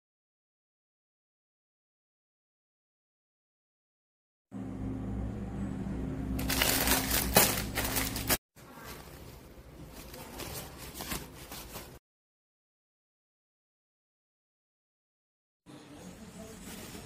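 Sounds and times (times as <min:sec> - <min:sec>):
steady low hum: 0:04.5 - 0:10.3
crinkling of plastic packaging: 0:06.4 - 0:12.0.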